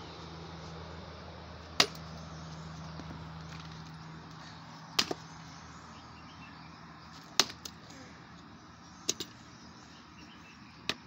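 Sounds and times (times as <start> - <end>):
axe chopping firewood: 1.7 - 2.1, 4.9 - 5.3, 7.2 - 8.0, 9.0 - 9.4.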